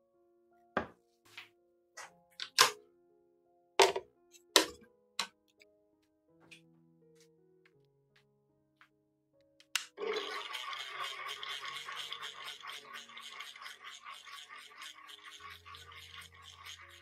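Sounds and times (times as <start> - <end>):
blender whirring: 10.0 - 16.9.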